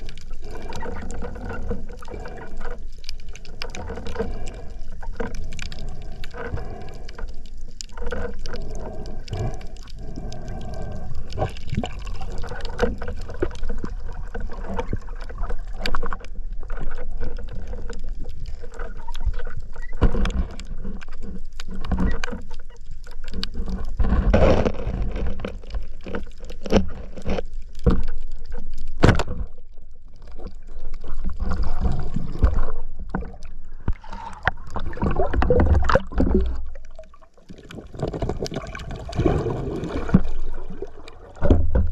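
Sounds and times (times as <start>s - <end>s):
muffled underwater rush and gurgle: 0.0s - 41.9s.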